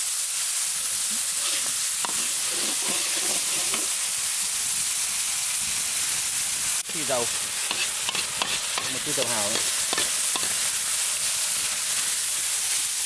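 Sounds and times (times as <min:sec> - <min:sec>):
vegetables sizzling in hot oil: 0:00.0 - 0:13.0
steel ladle stirring in wok: 0:01.1 - 0:04.0, 0:06.9 - 0:10.8.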